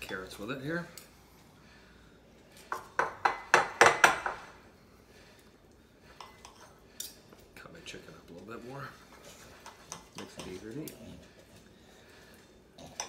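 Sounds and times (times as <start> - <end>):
cutlery scraping a ceramic bowl: 6.2 - 7.2.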